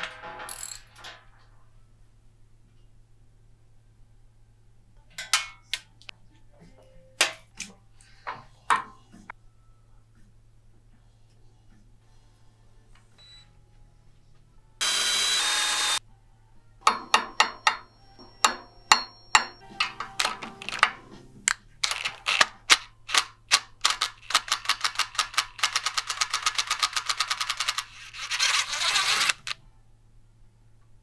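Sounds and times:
drill whirring: 14.8s - 16.0s, 27.5s - 29.6s.

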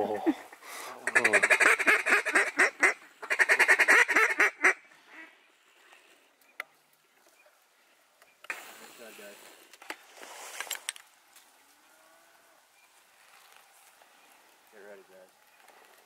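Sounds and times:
duck calls: 0.8s - 5.4s.

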